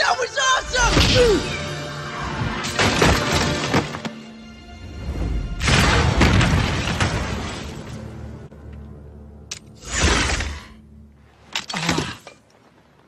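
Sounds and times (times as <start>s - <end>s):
action film score: 0.0s - 13.0s.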